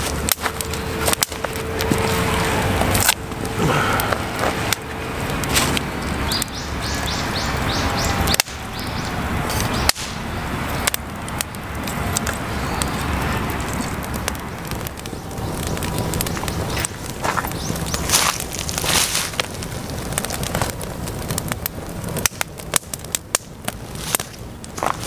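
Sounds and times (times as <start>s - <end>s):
campfire crackling: 0.0s - 25.0s.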